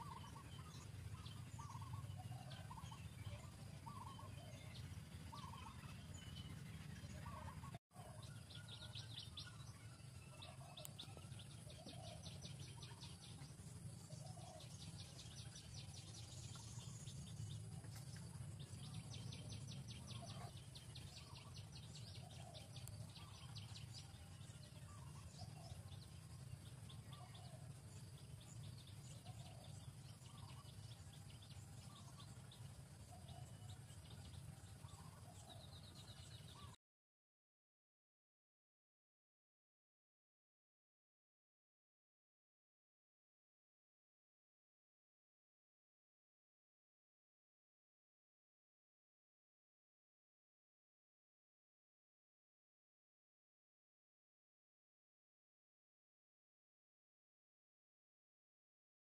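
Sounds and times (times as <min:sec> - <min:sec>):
steady low hum: 0:00.0 - 0:36.8.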